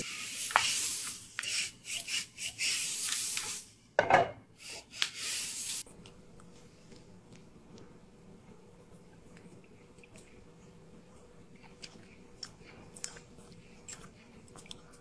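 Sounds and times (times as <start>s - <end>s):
stir-fry sizzling in a pan: 0.0s - 3.8s, 4.6s - 5.9s.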